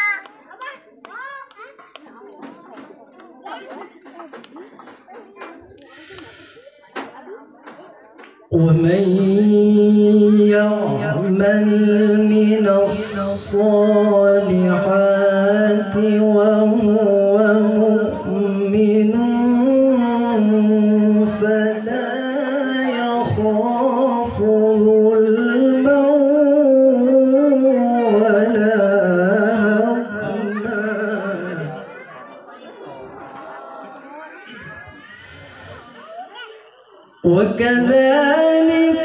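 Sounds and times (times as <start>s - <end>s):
man reciting in melodic sung style: 8.5s - 32.1s, 37.2s - 39.0s.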